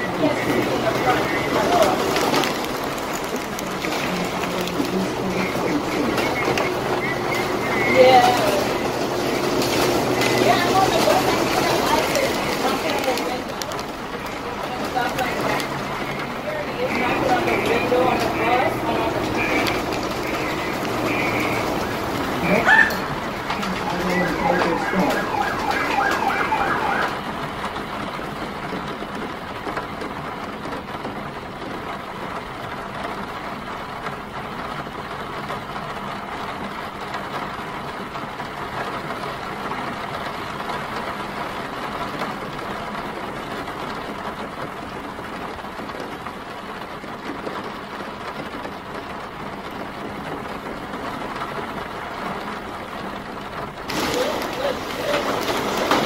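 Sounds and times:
emergency siren yelping: 0.0 - 27.9, 53.9 - 56.0
rain: 0.0 - 56.0
traffic: 0.0 - 56.0.

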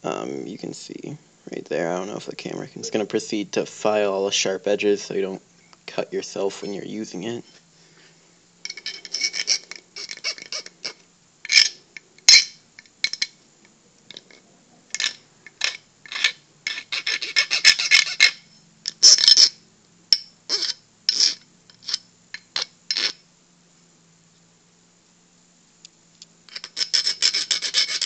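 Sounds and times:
metal file scraping aluminum: 8.7 - 11.8, 15.0 - 18.4, 20.5 - 23.2, 26.5 - 28.0.

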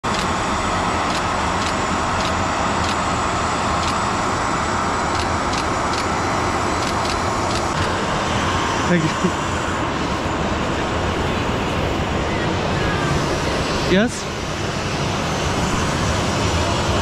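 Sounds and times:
machine noise with high whine: 0.0 - 17.0
camera shutter clicks: 6.8 - 7.8.

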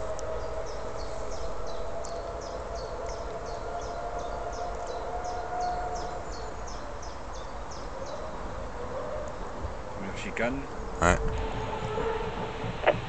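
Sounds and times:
distant racing car engine whine: 10.7 - 13.0.

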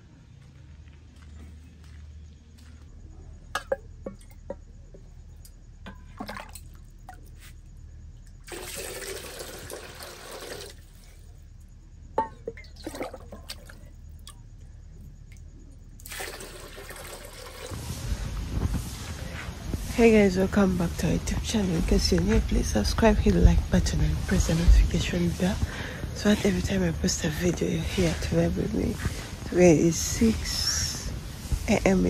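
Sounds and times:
water pouring into metal basin: 8.4 - 11.1, 12.5 - 13.9, 16.0 - 17.8.

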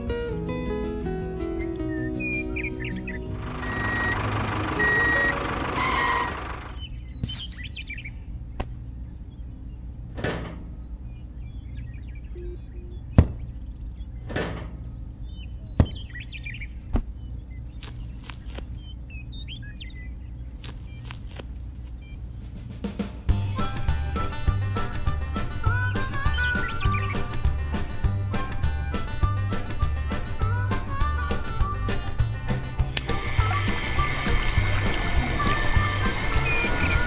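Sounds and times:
birds chirping: 0.6 - 37.0
steady low hum: 3.1 - 24.4.

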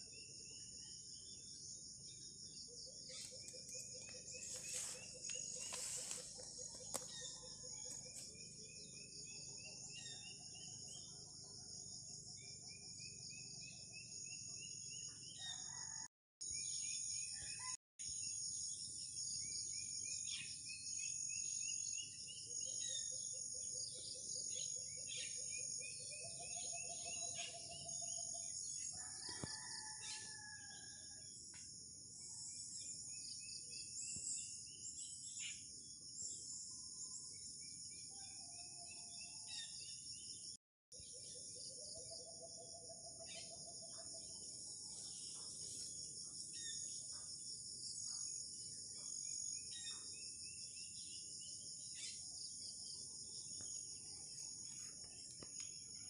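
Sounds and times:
insects chirping: 0.0 - 11.8, 39.2 - 56.0.

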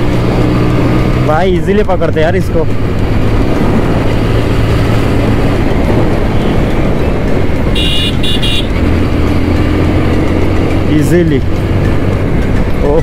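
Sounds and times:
motorcycle engine: 0.0 - 13.0
wind noise: 1.9 - 13.0
vehicle horn beeps: 7.7 - 8.8.

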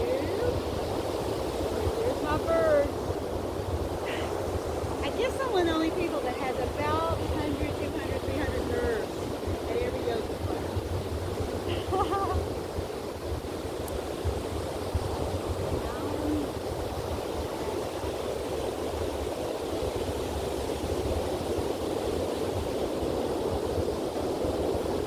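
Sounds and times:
ocean surf washing onto beach: 0.0 - 25.0
wind gusting on microphone: 0.0 - 25.0.

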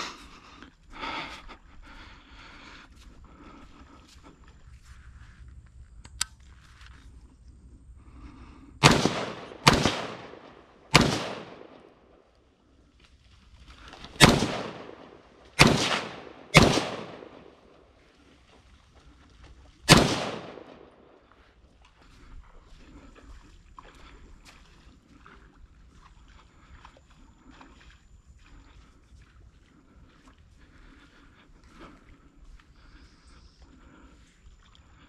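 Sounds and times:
gunshots echoing: 8.8 - 12.1, 14.1 - 17.8, 19.9 - 21.2.

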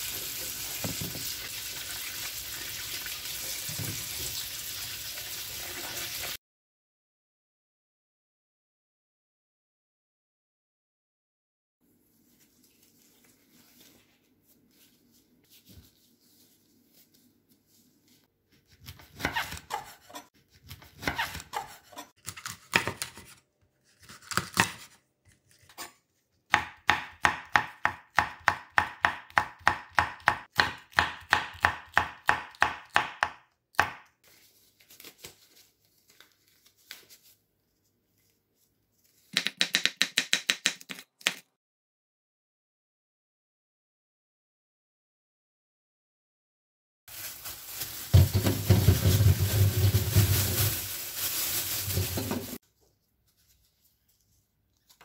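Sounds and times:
knife chopping on wooden board: 26.5 - 34.0.

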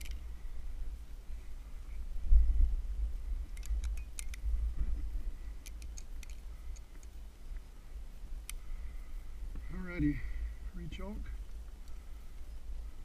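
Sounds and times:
carabiners clicking: 0.0 - 0.2, 3.5 - 4.4, 5.6 - 7.2.

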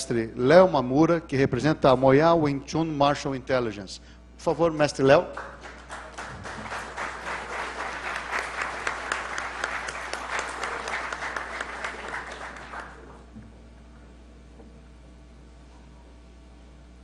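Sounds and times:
faint low hum: 0.0 - 17.0
audience applauding: 5.3 - 13.2.

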